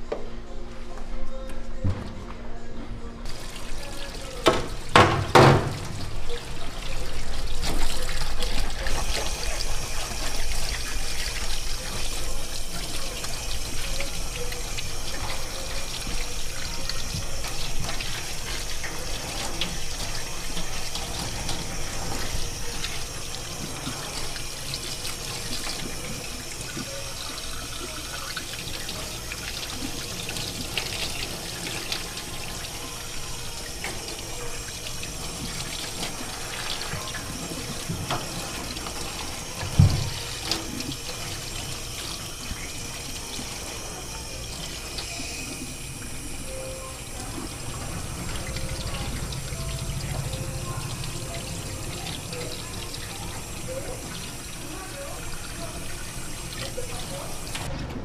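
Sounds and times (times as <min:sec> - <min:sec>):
tap water splashing in sink: 0:03.3 - 0:46.1.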